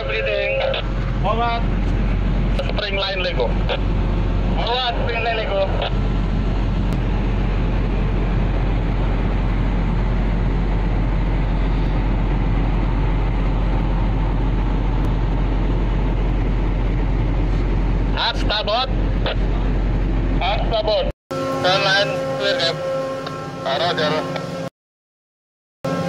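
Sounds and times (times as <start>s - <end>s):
deep hum: 0.0s - 24.7s
ship machinery drone: 0.0s - 24.7s.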